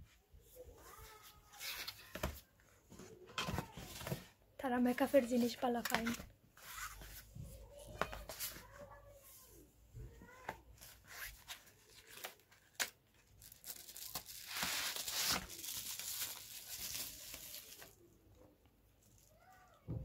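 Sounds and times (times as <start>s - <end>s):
plastic packaging crinkling: 11.8s - 18.1s.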